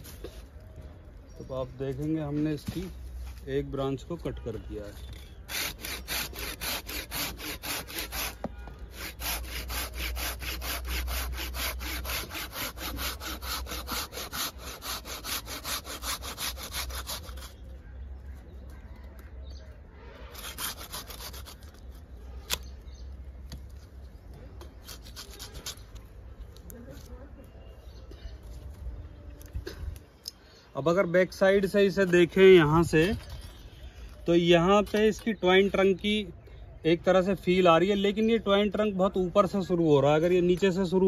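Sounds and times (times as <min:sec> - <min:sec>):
hand saw cutting branch: 0:05.2 - 0:17.6, 0:20.3 - 0:22.6, 0:24.7 - 0:26.0.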